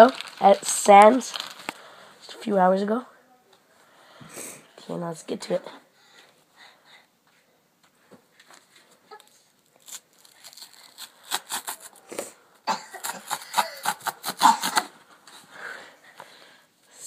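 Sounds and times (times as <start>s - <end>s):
cardboard tearing: 9.7s - 12.1s.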